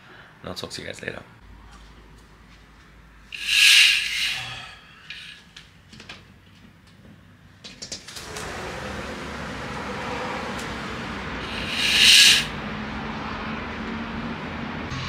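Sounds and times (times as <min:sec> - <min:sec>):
outside noise rush: 0:03.3 - 0:05.4, 0:08.8 - 0:15.0
curtain swishing along rail: 0:03.4 - 0:04.4, 0:11.4 - 0:12.5.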